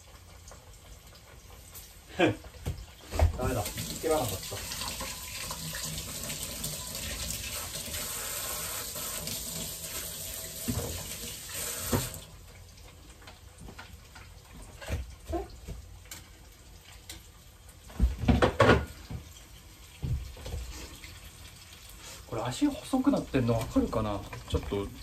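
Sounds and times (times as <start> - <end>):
tap running into sink: 2.6 - 8.1, 8.8 - 12.3.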